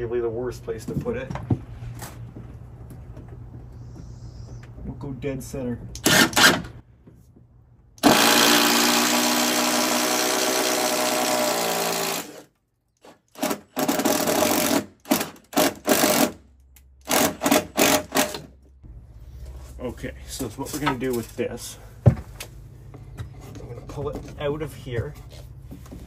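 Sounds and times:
drill boring through wood: 6.0s - 6.6s, 8.0s - 12.5s, 13.4s - 16.4s, 17.0s - 18.4s.

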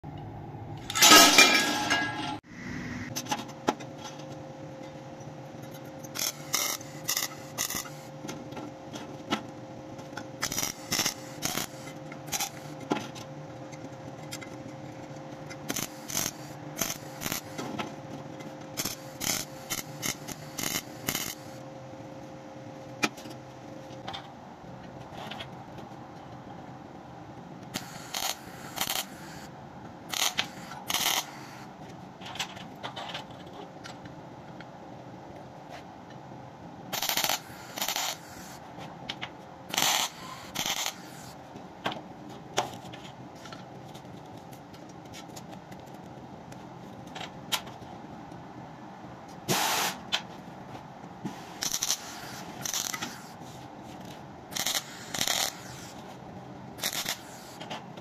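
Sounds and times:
steady hum: 0.0s - 58.0s
welding arc crackling: 6.1s - 8.1s, 10.4s - 12.8s, 15.6s - 17.6s, 18.8s - 21.6s, 27.8s - 29.5s, 30.1s - 31.6s, 36.9s - 38.6s, 39.7s - 41.4s, 51.6s - 53.3s, 54.5s - 56.0s, 56.8s - 57.6s.

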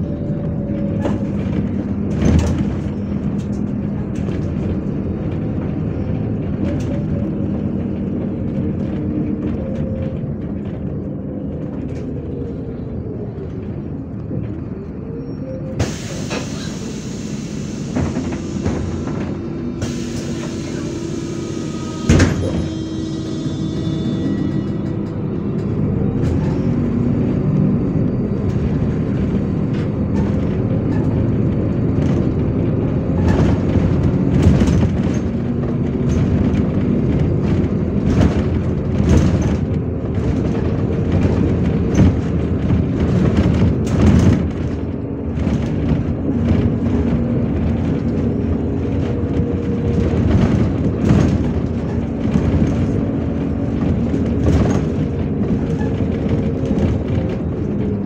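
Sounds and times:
bus engine and road noise: 0.0s - 58.0s
knocks and clatters from bus body: 0.0s - 58.0s.

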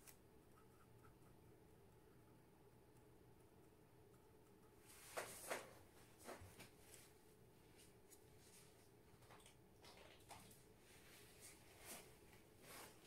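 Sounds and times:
soft taps and rustles: 4.9s - 10.6s.

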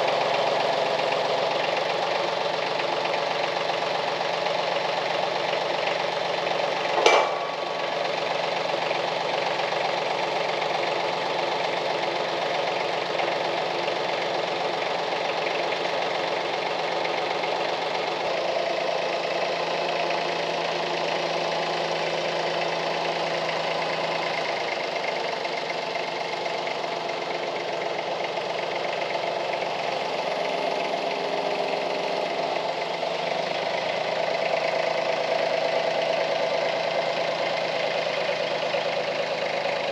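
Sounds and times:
tractor engine running: 0.0s - 39.9s
sharp knock: 7.0s - 8.1s.

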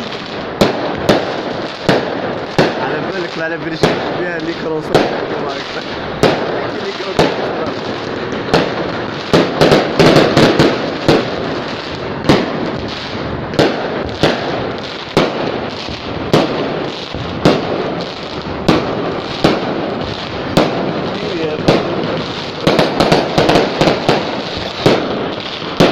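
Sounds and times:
firecrackers crackling: 0.0s - 25.9s
firework bangs: 0.0s - 25.9s.

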